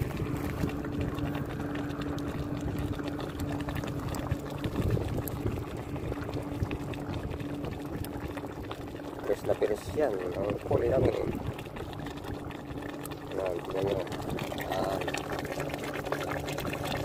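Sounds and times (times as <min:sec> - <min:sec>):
fire crackling: 0:00.0 - 0:17.0
low hum: 0:00.0 - 0:17.0
soup bubbling at the boil: 0:00.0 - 0:17.0.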